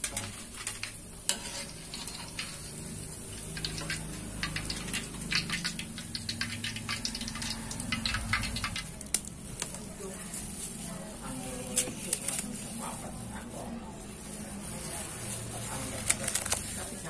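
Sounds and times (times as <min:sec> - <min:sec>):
metal utensils scraping a wok: 0:00.0 - 0:09.7
crackers frying in hot oil: 0:00.0 - 0:17.0.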